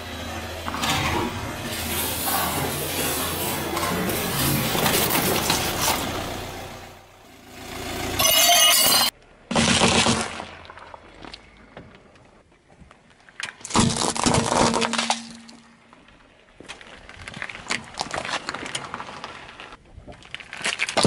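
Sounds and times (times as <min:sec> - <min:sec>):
plastic bottle cracking and bursting: 0:09.5 - 0:11.1, 0:13.4 - 0:15.6, 0:20.2 - 0:21.0
eggs cracking under tyre: 0:13.1 - 0:21.0.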